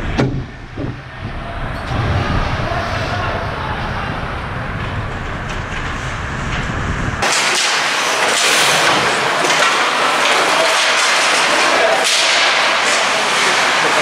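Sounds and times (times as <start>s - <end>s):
low rumble: 0.0s - 7.2s.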